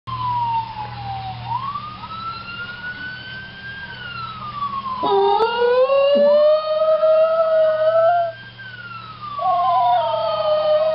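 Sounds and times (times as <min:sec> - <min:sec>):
police siren wailing: 0:00.1 - 0:10.9
dog howling: 0:05.0 - 0:08.4, 0:09.4 - 0:10.9.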